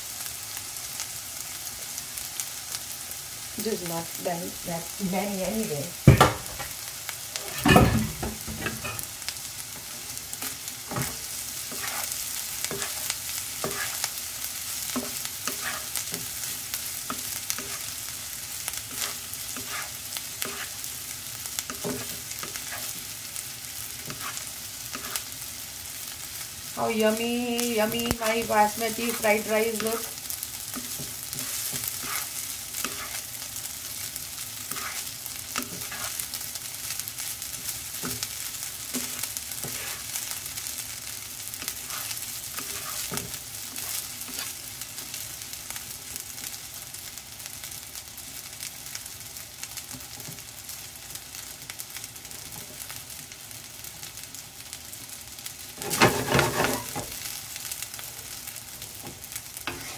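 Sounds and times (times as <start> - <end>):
rice sizzling in a frying pan: 0.0 - 59.9
wooden spatula scraping a pan: 10.4 - 14.1, 14.9 - 16.4, 18.9 - 20.8, 21.7 - 23.1, 24.0 - 25.3, 27.8 - 33.3, 34.7 - 36.3, 39.0 - 40.2, 41.6 - 44.6, 55.8 - 57.2, 59.0 - 59.9.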